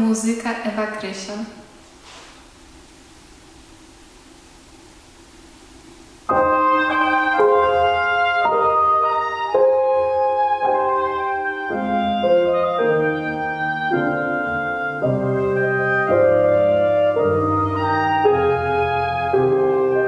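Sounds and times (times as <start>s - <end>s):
faint room hiss: 0.0s - 20.0s
instrumental keyboard backing track: 6.3s - 20.0s.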